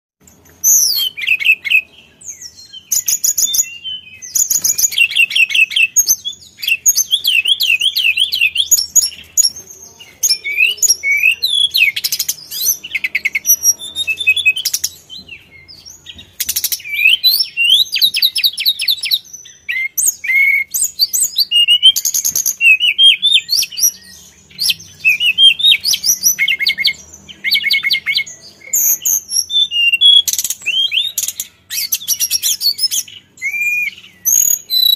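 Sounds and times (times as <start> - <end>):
bird singing trills and whistles: 0.2 - 34.9.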